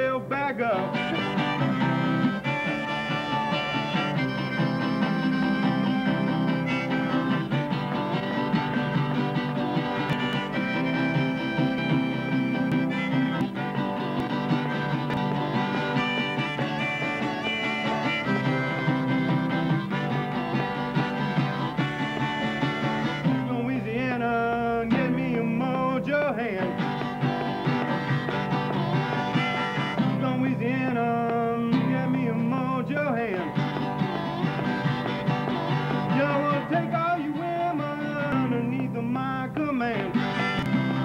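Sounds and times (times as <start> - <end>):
man singing: 0.0 - 7.0, 22.8 - 41.0
acoustic guitar playing: 0.0 - 41.0
harmonica: 0.0 - 41.0.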